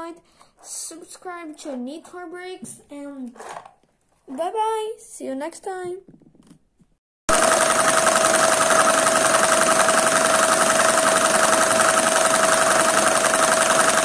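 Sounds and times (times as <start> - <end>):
vacuum cleaner motor: 7.3 - 14.0.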